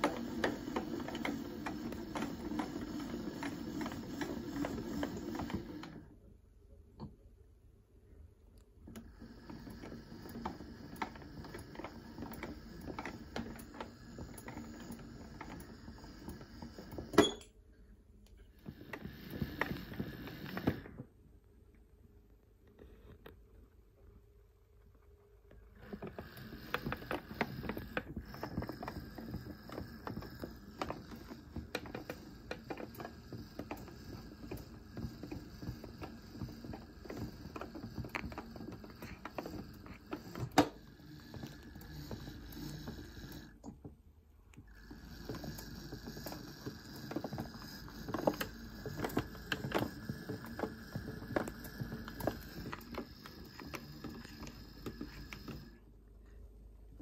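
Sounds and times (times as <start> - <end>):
small motor whining: 0.0 - 6.1, 25.8 - 43.6, 44.7 - 55.8
small parts clicking and knocking: 44.5 - 55.8.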